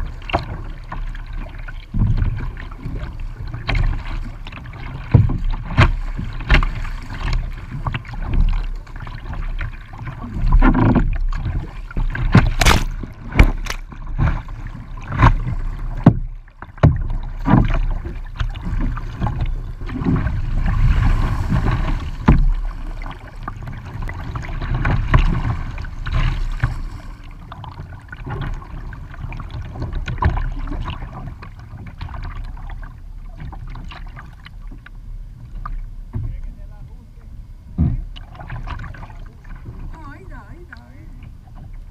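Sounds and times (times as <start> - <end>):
paddle strokes: 0.0 - 41.9
water splashing against kayak hull: 0.0 - 41.9.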